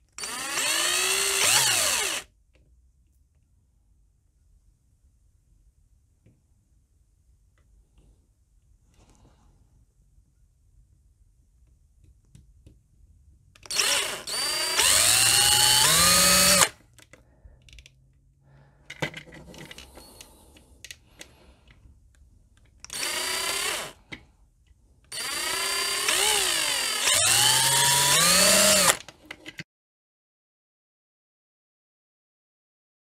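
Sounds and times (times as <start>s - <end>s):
power drill whining: 0.2s - 2.3s, 13.6s - 16.8s, 22.9s - 24.1s, 25.1s - 29.1s.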